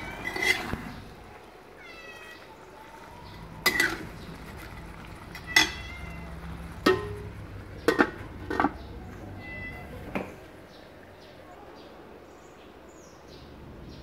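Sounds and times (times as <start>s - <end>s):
metal ladle clinking on wok: 0.0s - 0.9s, 3.6s - 4.2s, 5.4s - 6.2s, 6.8s - 8.8s
cat meowing: 1.8s - 4.0s, 5.3s - 6.6s, 8.9s - 10.4s.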